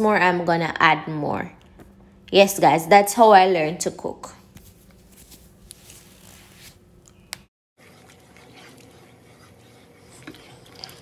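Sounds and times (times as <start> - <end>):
water boiling: 7.8 - 11.0
spoon scraping a pot: 7.9 - 11.0.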